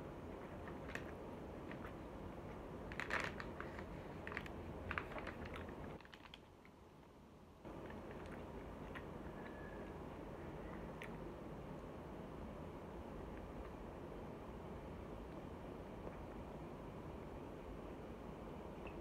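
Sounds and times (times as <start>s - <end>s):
paper bag crinkling: 2.8s - 6.5s.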